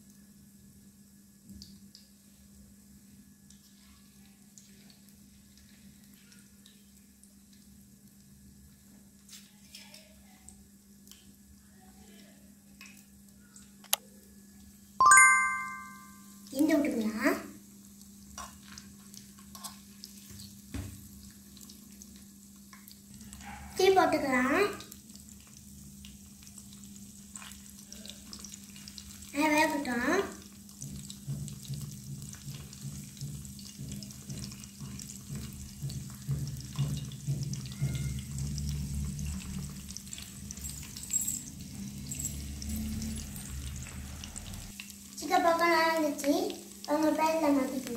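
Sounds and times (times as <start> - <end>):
hot oil sizzling: 16.2 - 47.9.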